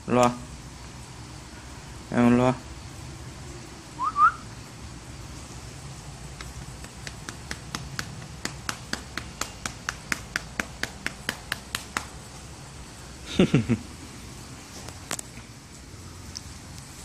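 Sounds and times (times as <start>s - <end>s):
hand patting a cat: 6.4s - 12.2s.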